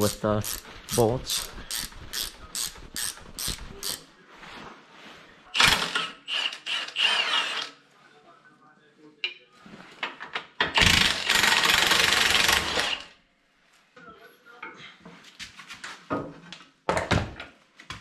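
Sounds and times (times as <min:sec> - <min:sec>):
ratchet clicking: 0:01.3 - 0:04.0.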